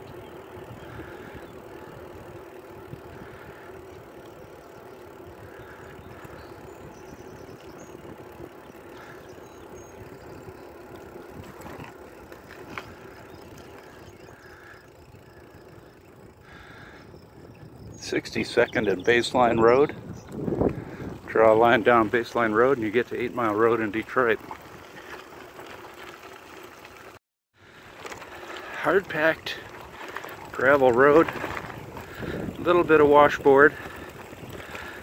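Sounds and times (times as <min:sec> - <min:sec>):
bicycle tyre hum on asphalt: 0:00.0 - 0:35.0
wind noise: 0:05.3 - 0:14.4, 0:15.0 - 0:23.4, 0:29.6 - 0:35.0.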